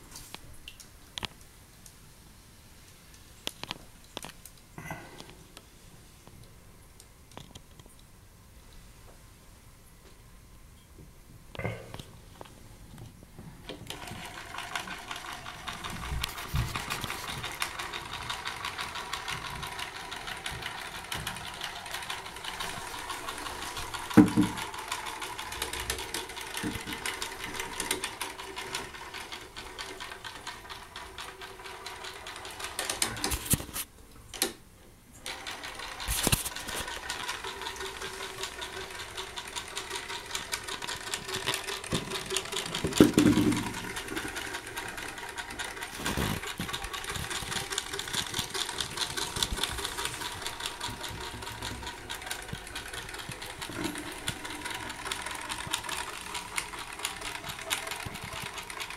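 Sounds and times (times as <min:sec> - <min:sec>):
clockwork motor whirring: 0:13.8 - 0:33.3, 0:35.2 - 0:58.9.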